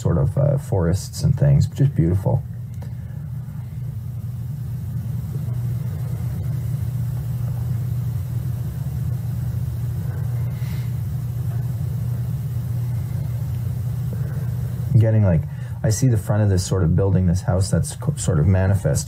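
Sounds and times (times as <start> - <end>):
low rumbling hum: 0.0 - 19.0.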